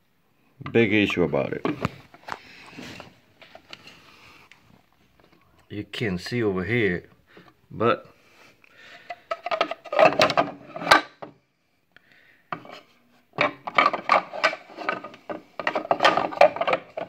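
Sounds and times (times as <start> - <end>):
wooden parts clattering and scraping: 1.5 - 4.1, 8.8 - 11.4, 12.5 - 17.0.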